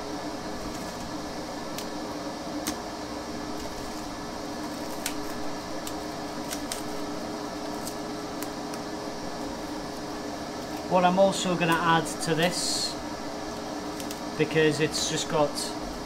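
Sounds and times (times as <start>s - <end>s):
machine hum with held tones: 0.0s - 16.0s
crusty bread crackling: 0.5s - 12.7s.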